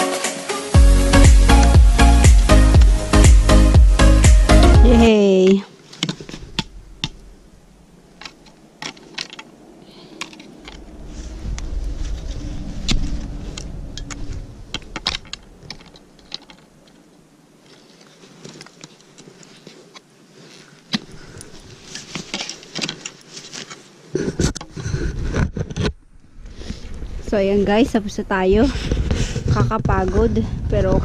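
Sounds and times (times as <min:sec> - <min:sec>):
low rumbling bursts: 0:06.2 - 0:17.4, 0:26.0 - 0:31.0
skis and poles crunching on snow: 0:08.1 - 0:27.5.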